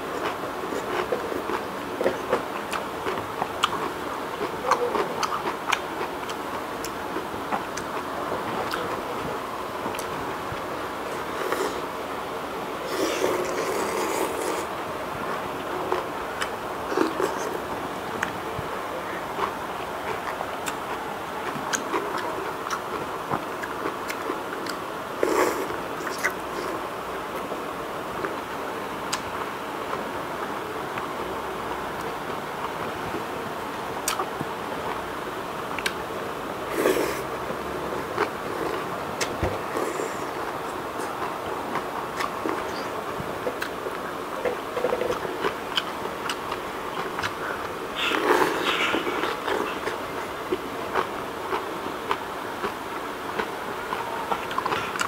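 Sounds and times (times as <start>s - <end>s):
wet chewing: 0.2s - 9.2s, 19.4s - 26.8s, 38.0s - 52.7s, 53.3s - 55.0s
slurping noodles: 12.8s - 14.7s, 47.2s - 50.0s.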